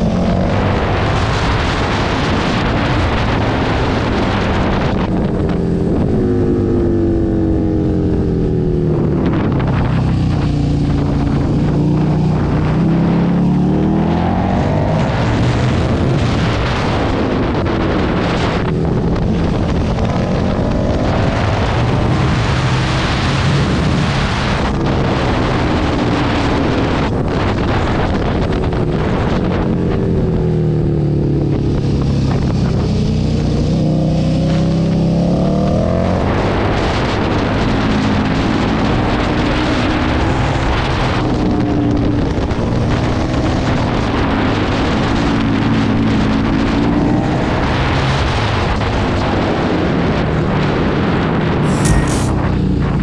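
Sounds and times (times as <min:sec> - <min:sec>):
wind rush on microphone: 0:00.0 - 0:53.0
motorcycle engine revving: 0:51.6 - 0:52.4.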